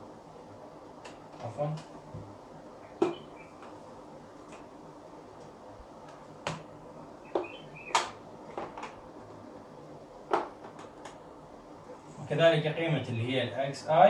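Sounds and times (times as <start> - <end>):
faint steady hum: 0.0 - 14.0
marker tapping whiteboard: 7.3 - 9.0, 10.3 - 11.2.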